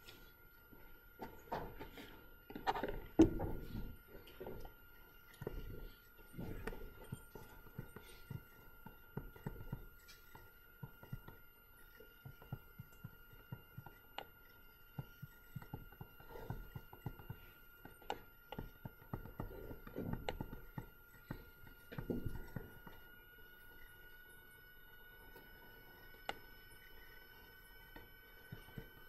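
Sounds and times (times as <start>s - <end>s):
small taps and clicks: 2.5s - 24.2s.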